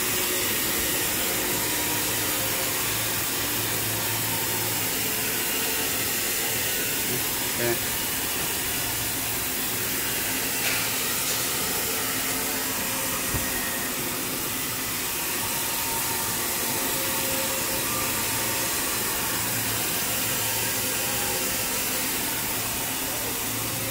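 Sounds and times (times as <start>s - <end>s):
machinery blower hiss: 0.0s - 23.9s.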